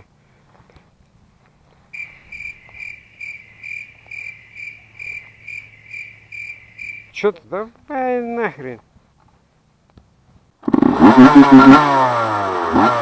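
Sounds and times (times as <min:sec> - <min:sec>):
cricket chirping: 0:01.9 - 0:07.4.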